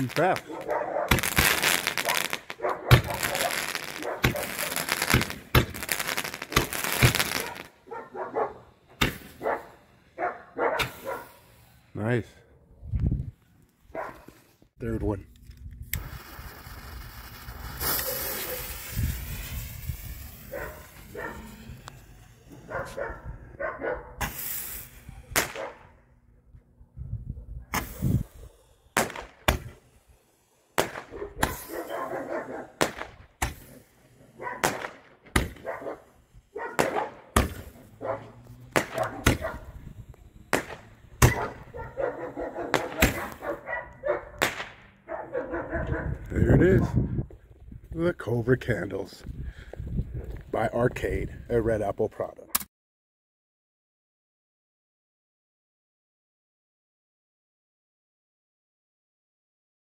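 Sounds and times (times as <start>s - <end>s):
firework shots and bangs: 0.0s - 7.8s, 8.9s - 9.6s, 10.8s - 11.4s, 16.0s - 22.6s, 24.2s - 25.8s, 27.7s - 35.8s, 36.7s - 38.0s, 38.6s - 41.9s, 42.7s - 43.5s, 44.4s - 45.0s
dog barking: 0.5s - 1.2s, 2.0s - 4.7s, 7.4s - 8.7s, 9.4s - 11.4s, 13.9s - 14.3s, 20.5s - 21.5s, 22.6s - 24.2s, 25.6s - 25.8s, 31.1s - 32.8s, 33.7s - 34.8s, 35.6s - 37.2s, 38.0s - 38.4s, 39.0s - 39.7s, 41.3s - 44.4s, 45.1s - 46.2s.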